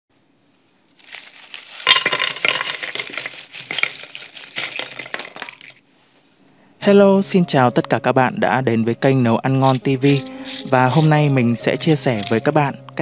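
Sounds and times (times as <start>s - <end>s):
fried potato sticks clattering: 1.0s - 5.8s, 9.6s - 11.3s, 12.0s - 12.5s.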